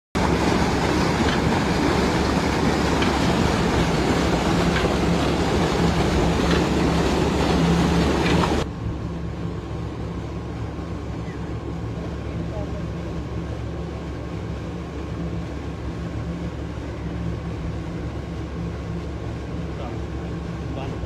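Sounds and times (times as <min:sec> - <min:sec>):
water gushing into channel: 0:00.2 - 0:08.7
low engine hum: 0:00.2 - 0:21.0.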